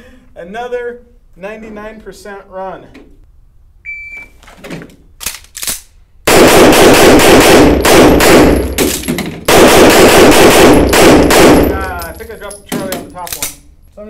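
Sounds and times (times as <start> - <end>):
pistol shots echoing: 6.3 - 12.2.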